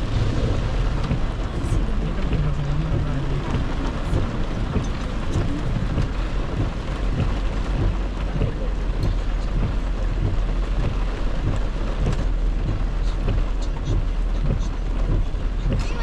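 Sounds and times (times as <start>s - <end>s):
car engine and tyres rumbling: 0.0s - 16.0s
heavy rain on car roof: 0.0s - 16.0s.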